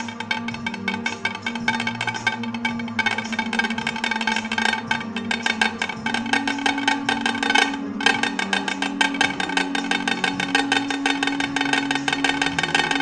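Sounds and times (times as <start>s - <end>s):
music with fast percussive beat: 0.0s - 13.0s.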